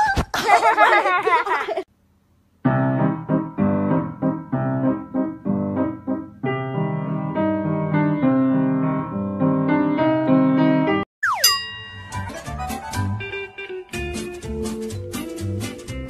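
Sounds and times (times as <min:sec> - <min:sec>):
piano-like keyboard chords: 0:02.7 - 0:14.4.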